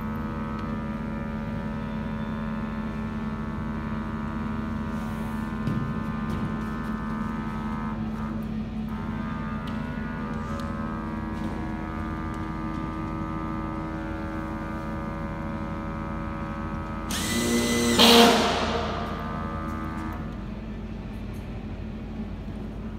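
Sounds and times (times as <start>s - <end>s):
vacuum pump humming: 5.6s - 21.0s
cordless drill whirring: 17.1s - 19.0s.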